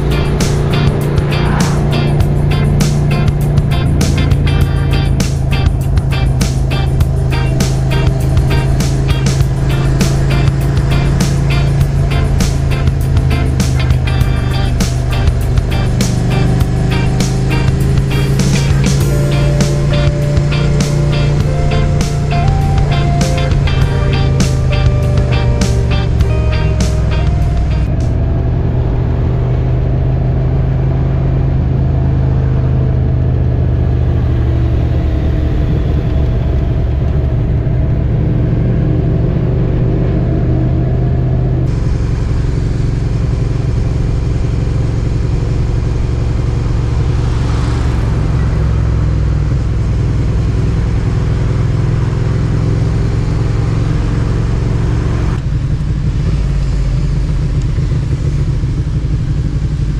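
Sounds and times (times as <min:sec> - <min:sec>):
rush of wind noise: 0:00.0 - 0:07.2
motorcycle engine cruising: 0:00.0 - 0:59.9.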